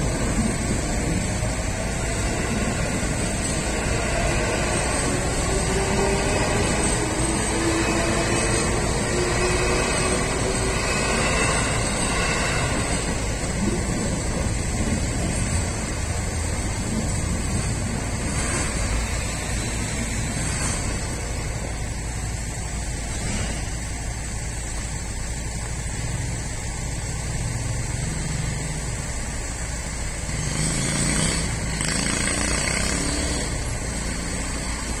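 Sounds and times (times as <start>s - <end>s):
electric train motor whine: 0.0s - 26.7s
freight train rolling: 0.0s - 35.0s
road traffic: 0.0s - 35.0s.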